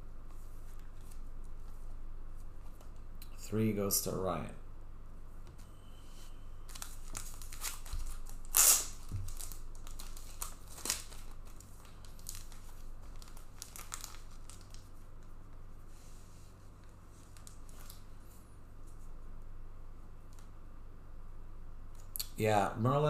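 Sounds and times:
cards rustling and clicking: 6.7s - 14.8s
packaging tearing and crinkling: 6.7s - 14.9s.

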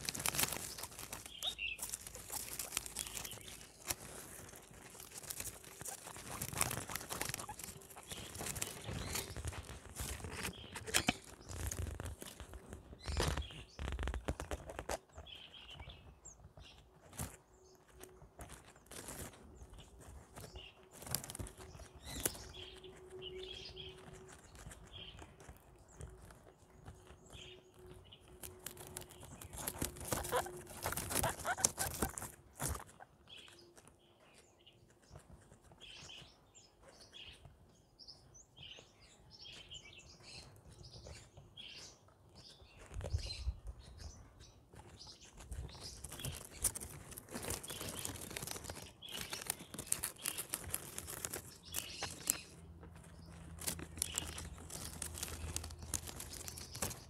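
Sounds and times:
guinea pig high chirps: 0.0s - 12.4s, 27.3s - 34.3s, 42.8s - 52.6s, 53.6s - 57.0s
guinea pigs crunching plants: 0.0s - 57.0s.

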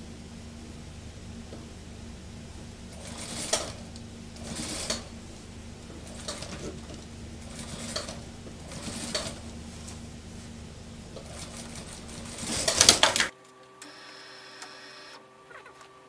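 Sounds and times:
quiet steady whine: 0.0s - 16.0s
sewing machine motor hum: 2.3s - 16.0s
sewing machine stitching: 3.0s - 5.2s, 6.0s - 9.6s, 11.2s - 13.3s.

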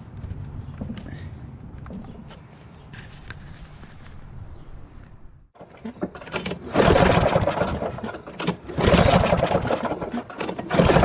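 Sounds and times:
pull-starter cranking engine: 5.6s - 11.0s.

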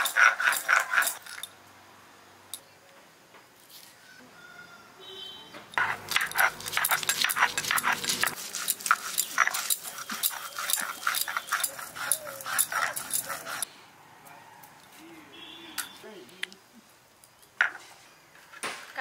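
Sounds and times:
stone grinding and scraping: 0.0s - 1.5s, 5.7s - 13.7s.

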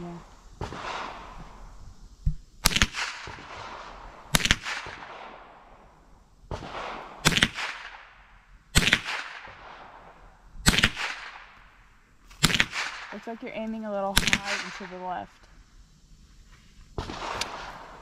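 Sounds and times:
rifle shots with echo: 0.6s - 1.4s, 2.6s - 5.8s, 6.5s - 11.6s, 12.4s - 13.2s, 14.2s - 15.0s, 17.0s - 18.0s.

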